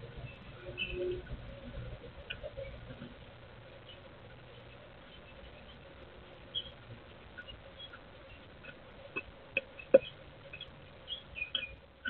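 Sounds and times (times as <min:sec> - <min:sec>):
faint bird chirps: 0:00.0 - 0:11.9
woodpecker bill tapping: 0:06.5 - 0:11.8.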